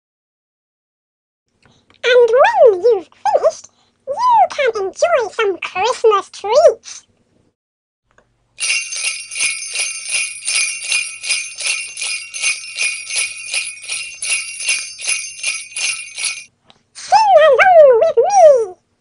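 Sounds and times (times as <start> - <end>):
jingle bells shaking: 8.6 - 16.5.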